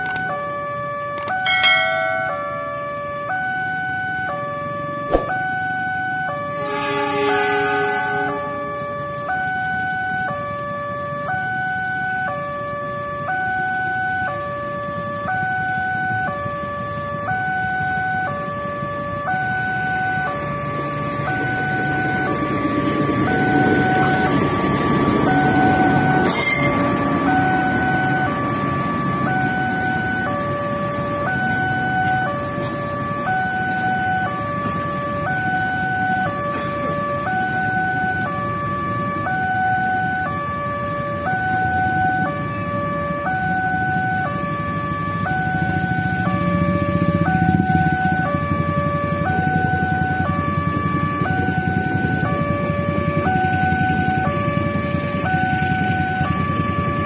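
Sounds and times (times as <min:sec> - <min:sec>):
level crossing two-tone chime: 0:01.4 - 0:02.8
passenger train rumbling past: 0:01.4 - 0:09.2, 0:19.1 - 0:57.0.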